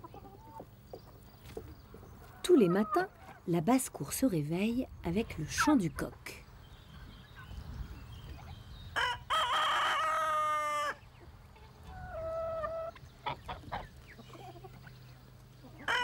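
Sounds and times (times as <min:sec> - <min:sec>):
rooster crowing: 0:09.0 - 0:11.0.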